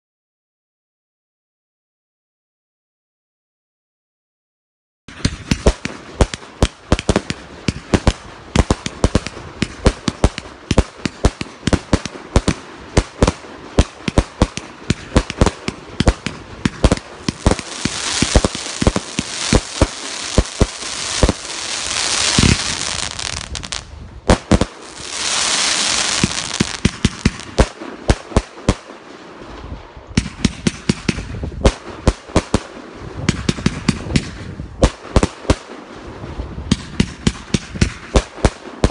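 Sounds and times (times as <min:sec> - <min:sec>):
firework shots bursting: 0:05.1 - 0:29.0, 0:30.2 - 0:35.8
firework crackling hiss: 0:07.0 - 0:28.2.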